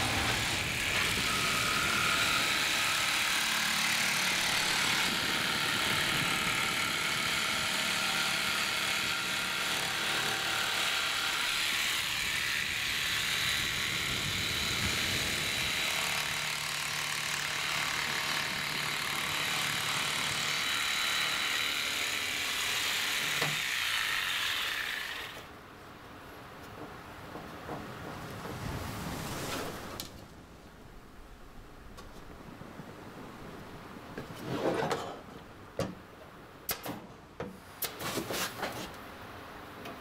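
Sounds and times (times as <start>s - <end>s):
electric jigsaw cutting wood: 0.0s - 25.5s.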